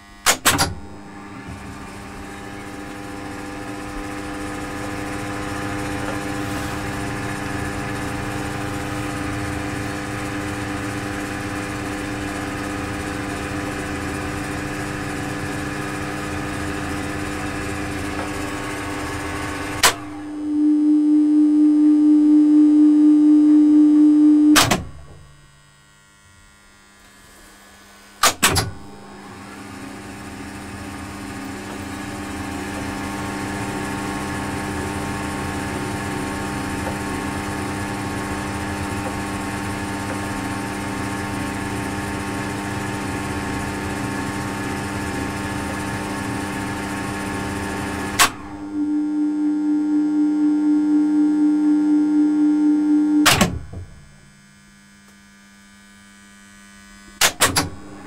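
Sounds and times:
elevator machinery running: 0.0s - 20.4s, 27.2s - 48.8s
loud electrical hum: 0.0s - 58.0s.

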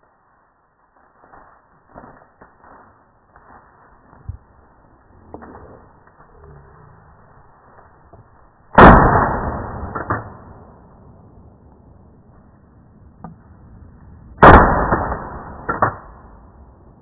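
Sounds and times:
shotgun shots: 8.8s - 10.6s, 14.4s - 16.3s.

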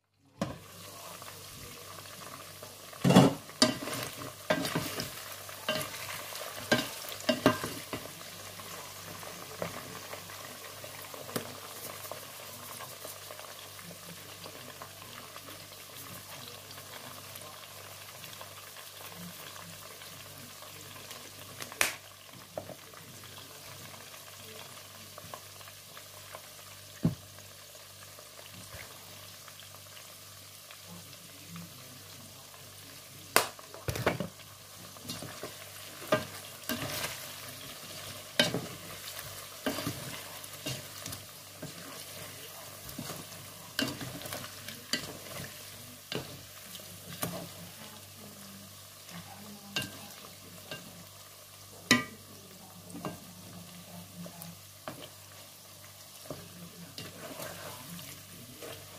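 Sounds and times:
meat sizzling in oil: 0.4s - 58.9s
wooden spatula scraping pot: 56.3s - 58.9s.

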